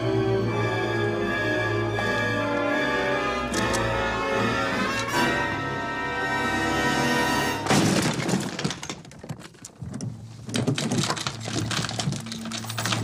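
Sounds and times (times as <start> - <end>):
dramatic film score music: 0.0 - 7.7
glass pane smashing: 7.6 - 9.6
glass and door rattling: 7.6 - 13.0
breaking glass clatter: 10.7 - 13.0.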